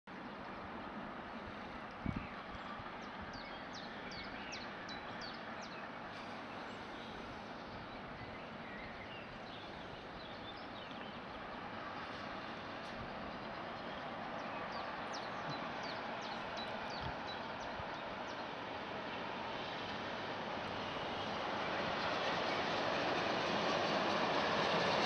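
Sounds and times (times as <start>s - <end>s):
birds chirping: 0.2s - 18.6s.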